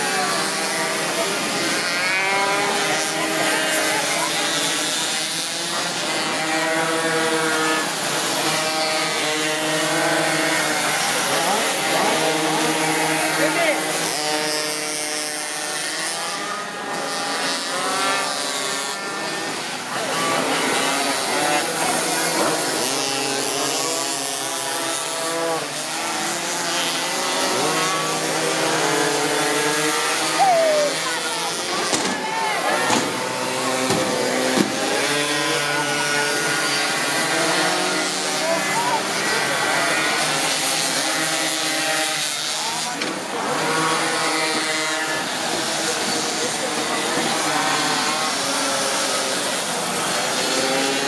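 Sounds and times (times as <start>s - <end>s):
engine revving up: 0.0s - 31.9s, 32.6s - 51.0s
pocket bike engines buzzing: 0.0s - 51.0s.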